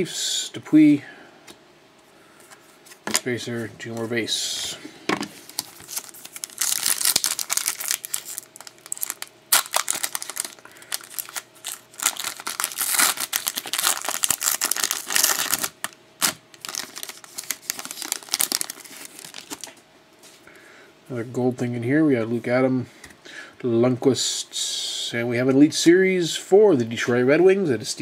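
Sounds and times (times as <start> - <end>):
foil wrapper tearing and crinkling: 5.5 - 19.8.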